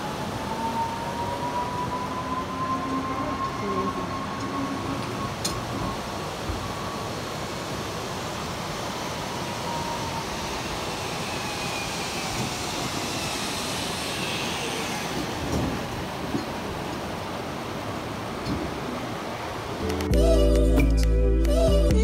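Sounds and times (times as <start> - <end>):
zip-line trolley whirring on cable: 6.2 - 16.6.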